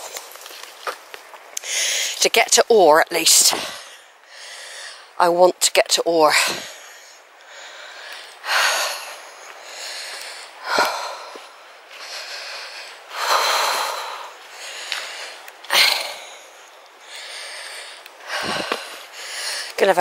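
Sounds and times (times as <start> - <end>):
woman breathing hard: 1.6 - 2.2, 3.6 - 5.2, 6.3 - 19.8.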